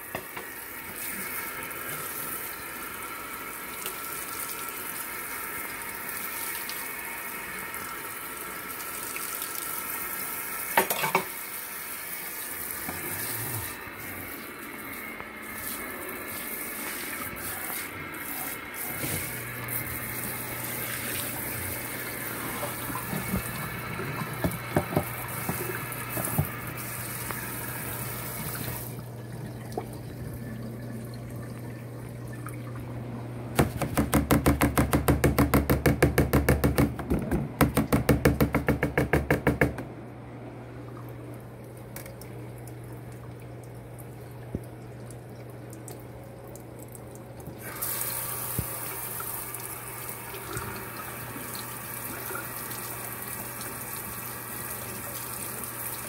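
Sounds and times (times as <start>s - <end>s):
low steady hum: 12.6s - 33.9s, 39.3s - 55.9s
tap water splashing into sink: 18.9s - 27.5s, 44.4s - 53.0s
sharp knocks: 33.6s - 39.9s.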